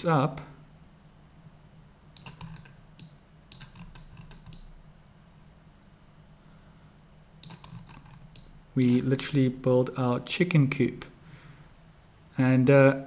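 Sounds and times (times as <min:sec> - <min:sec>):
faint low hum: 0:00.0 - 0:13.0
keyboard and mouse clicks: 0:02.2 - 0:04.7, 0:07.4 - 0:09.0.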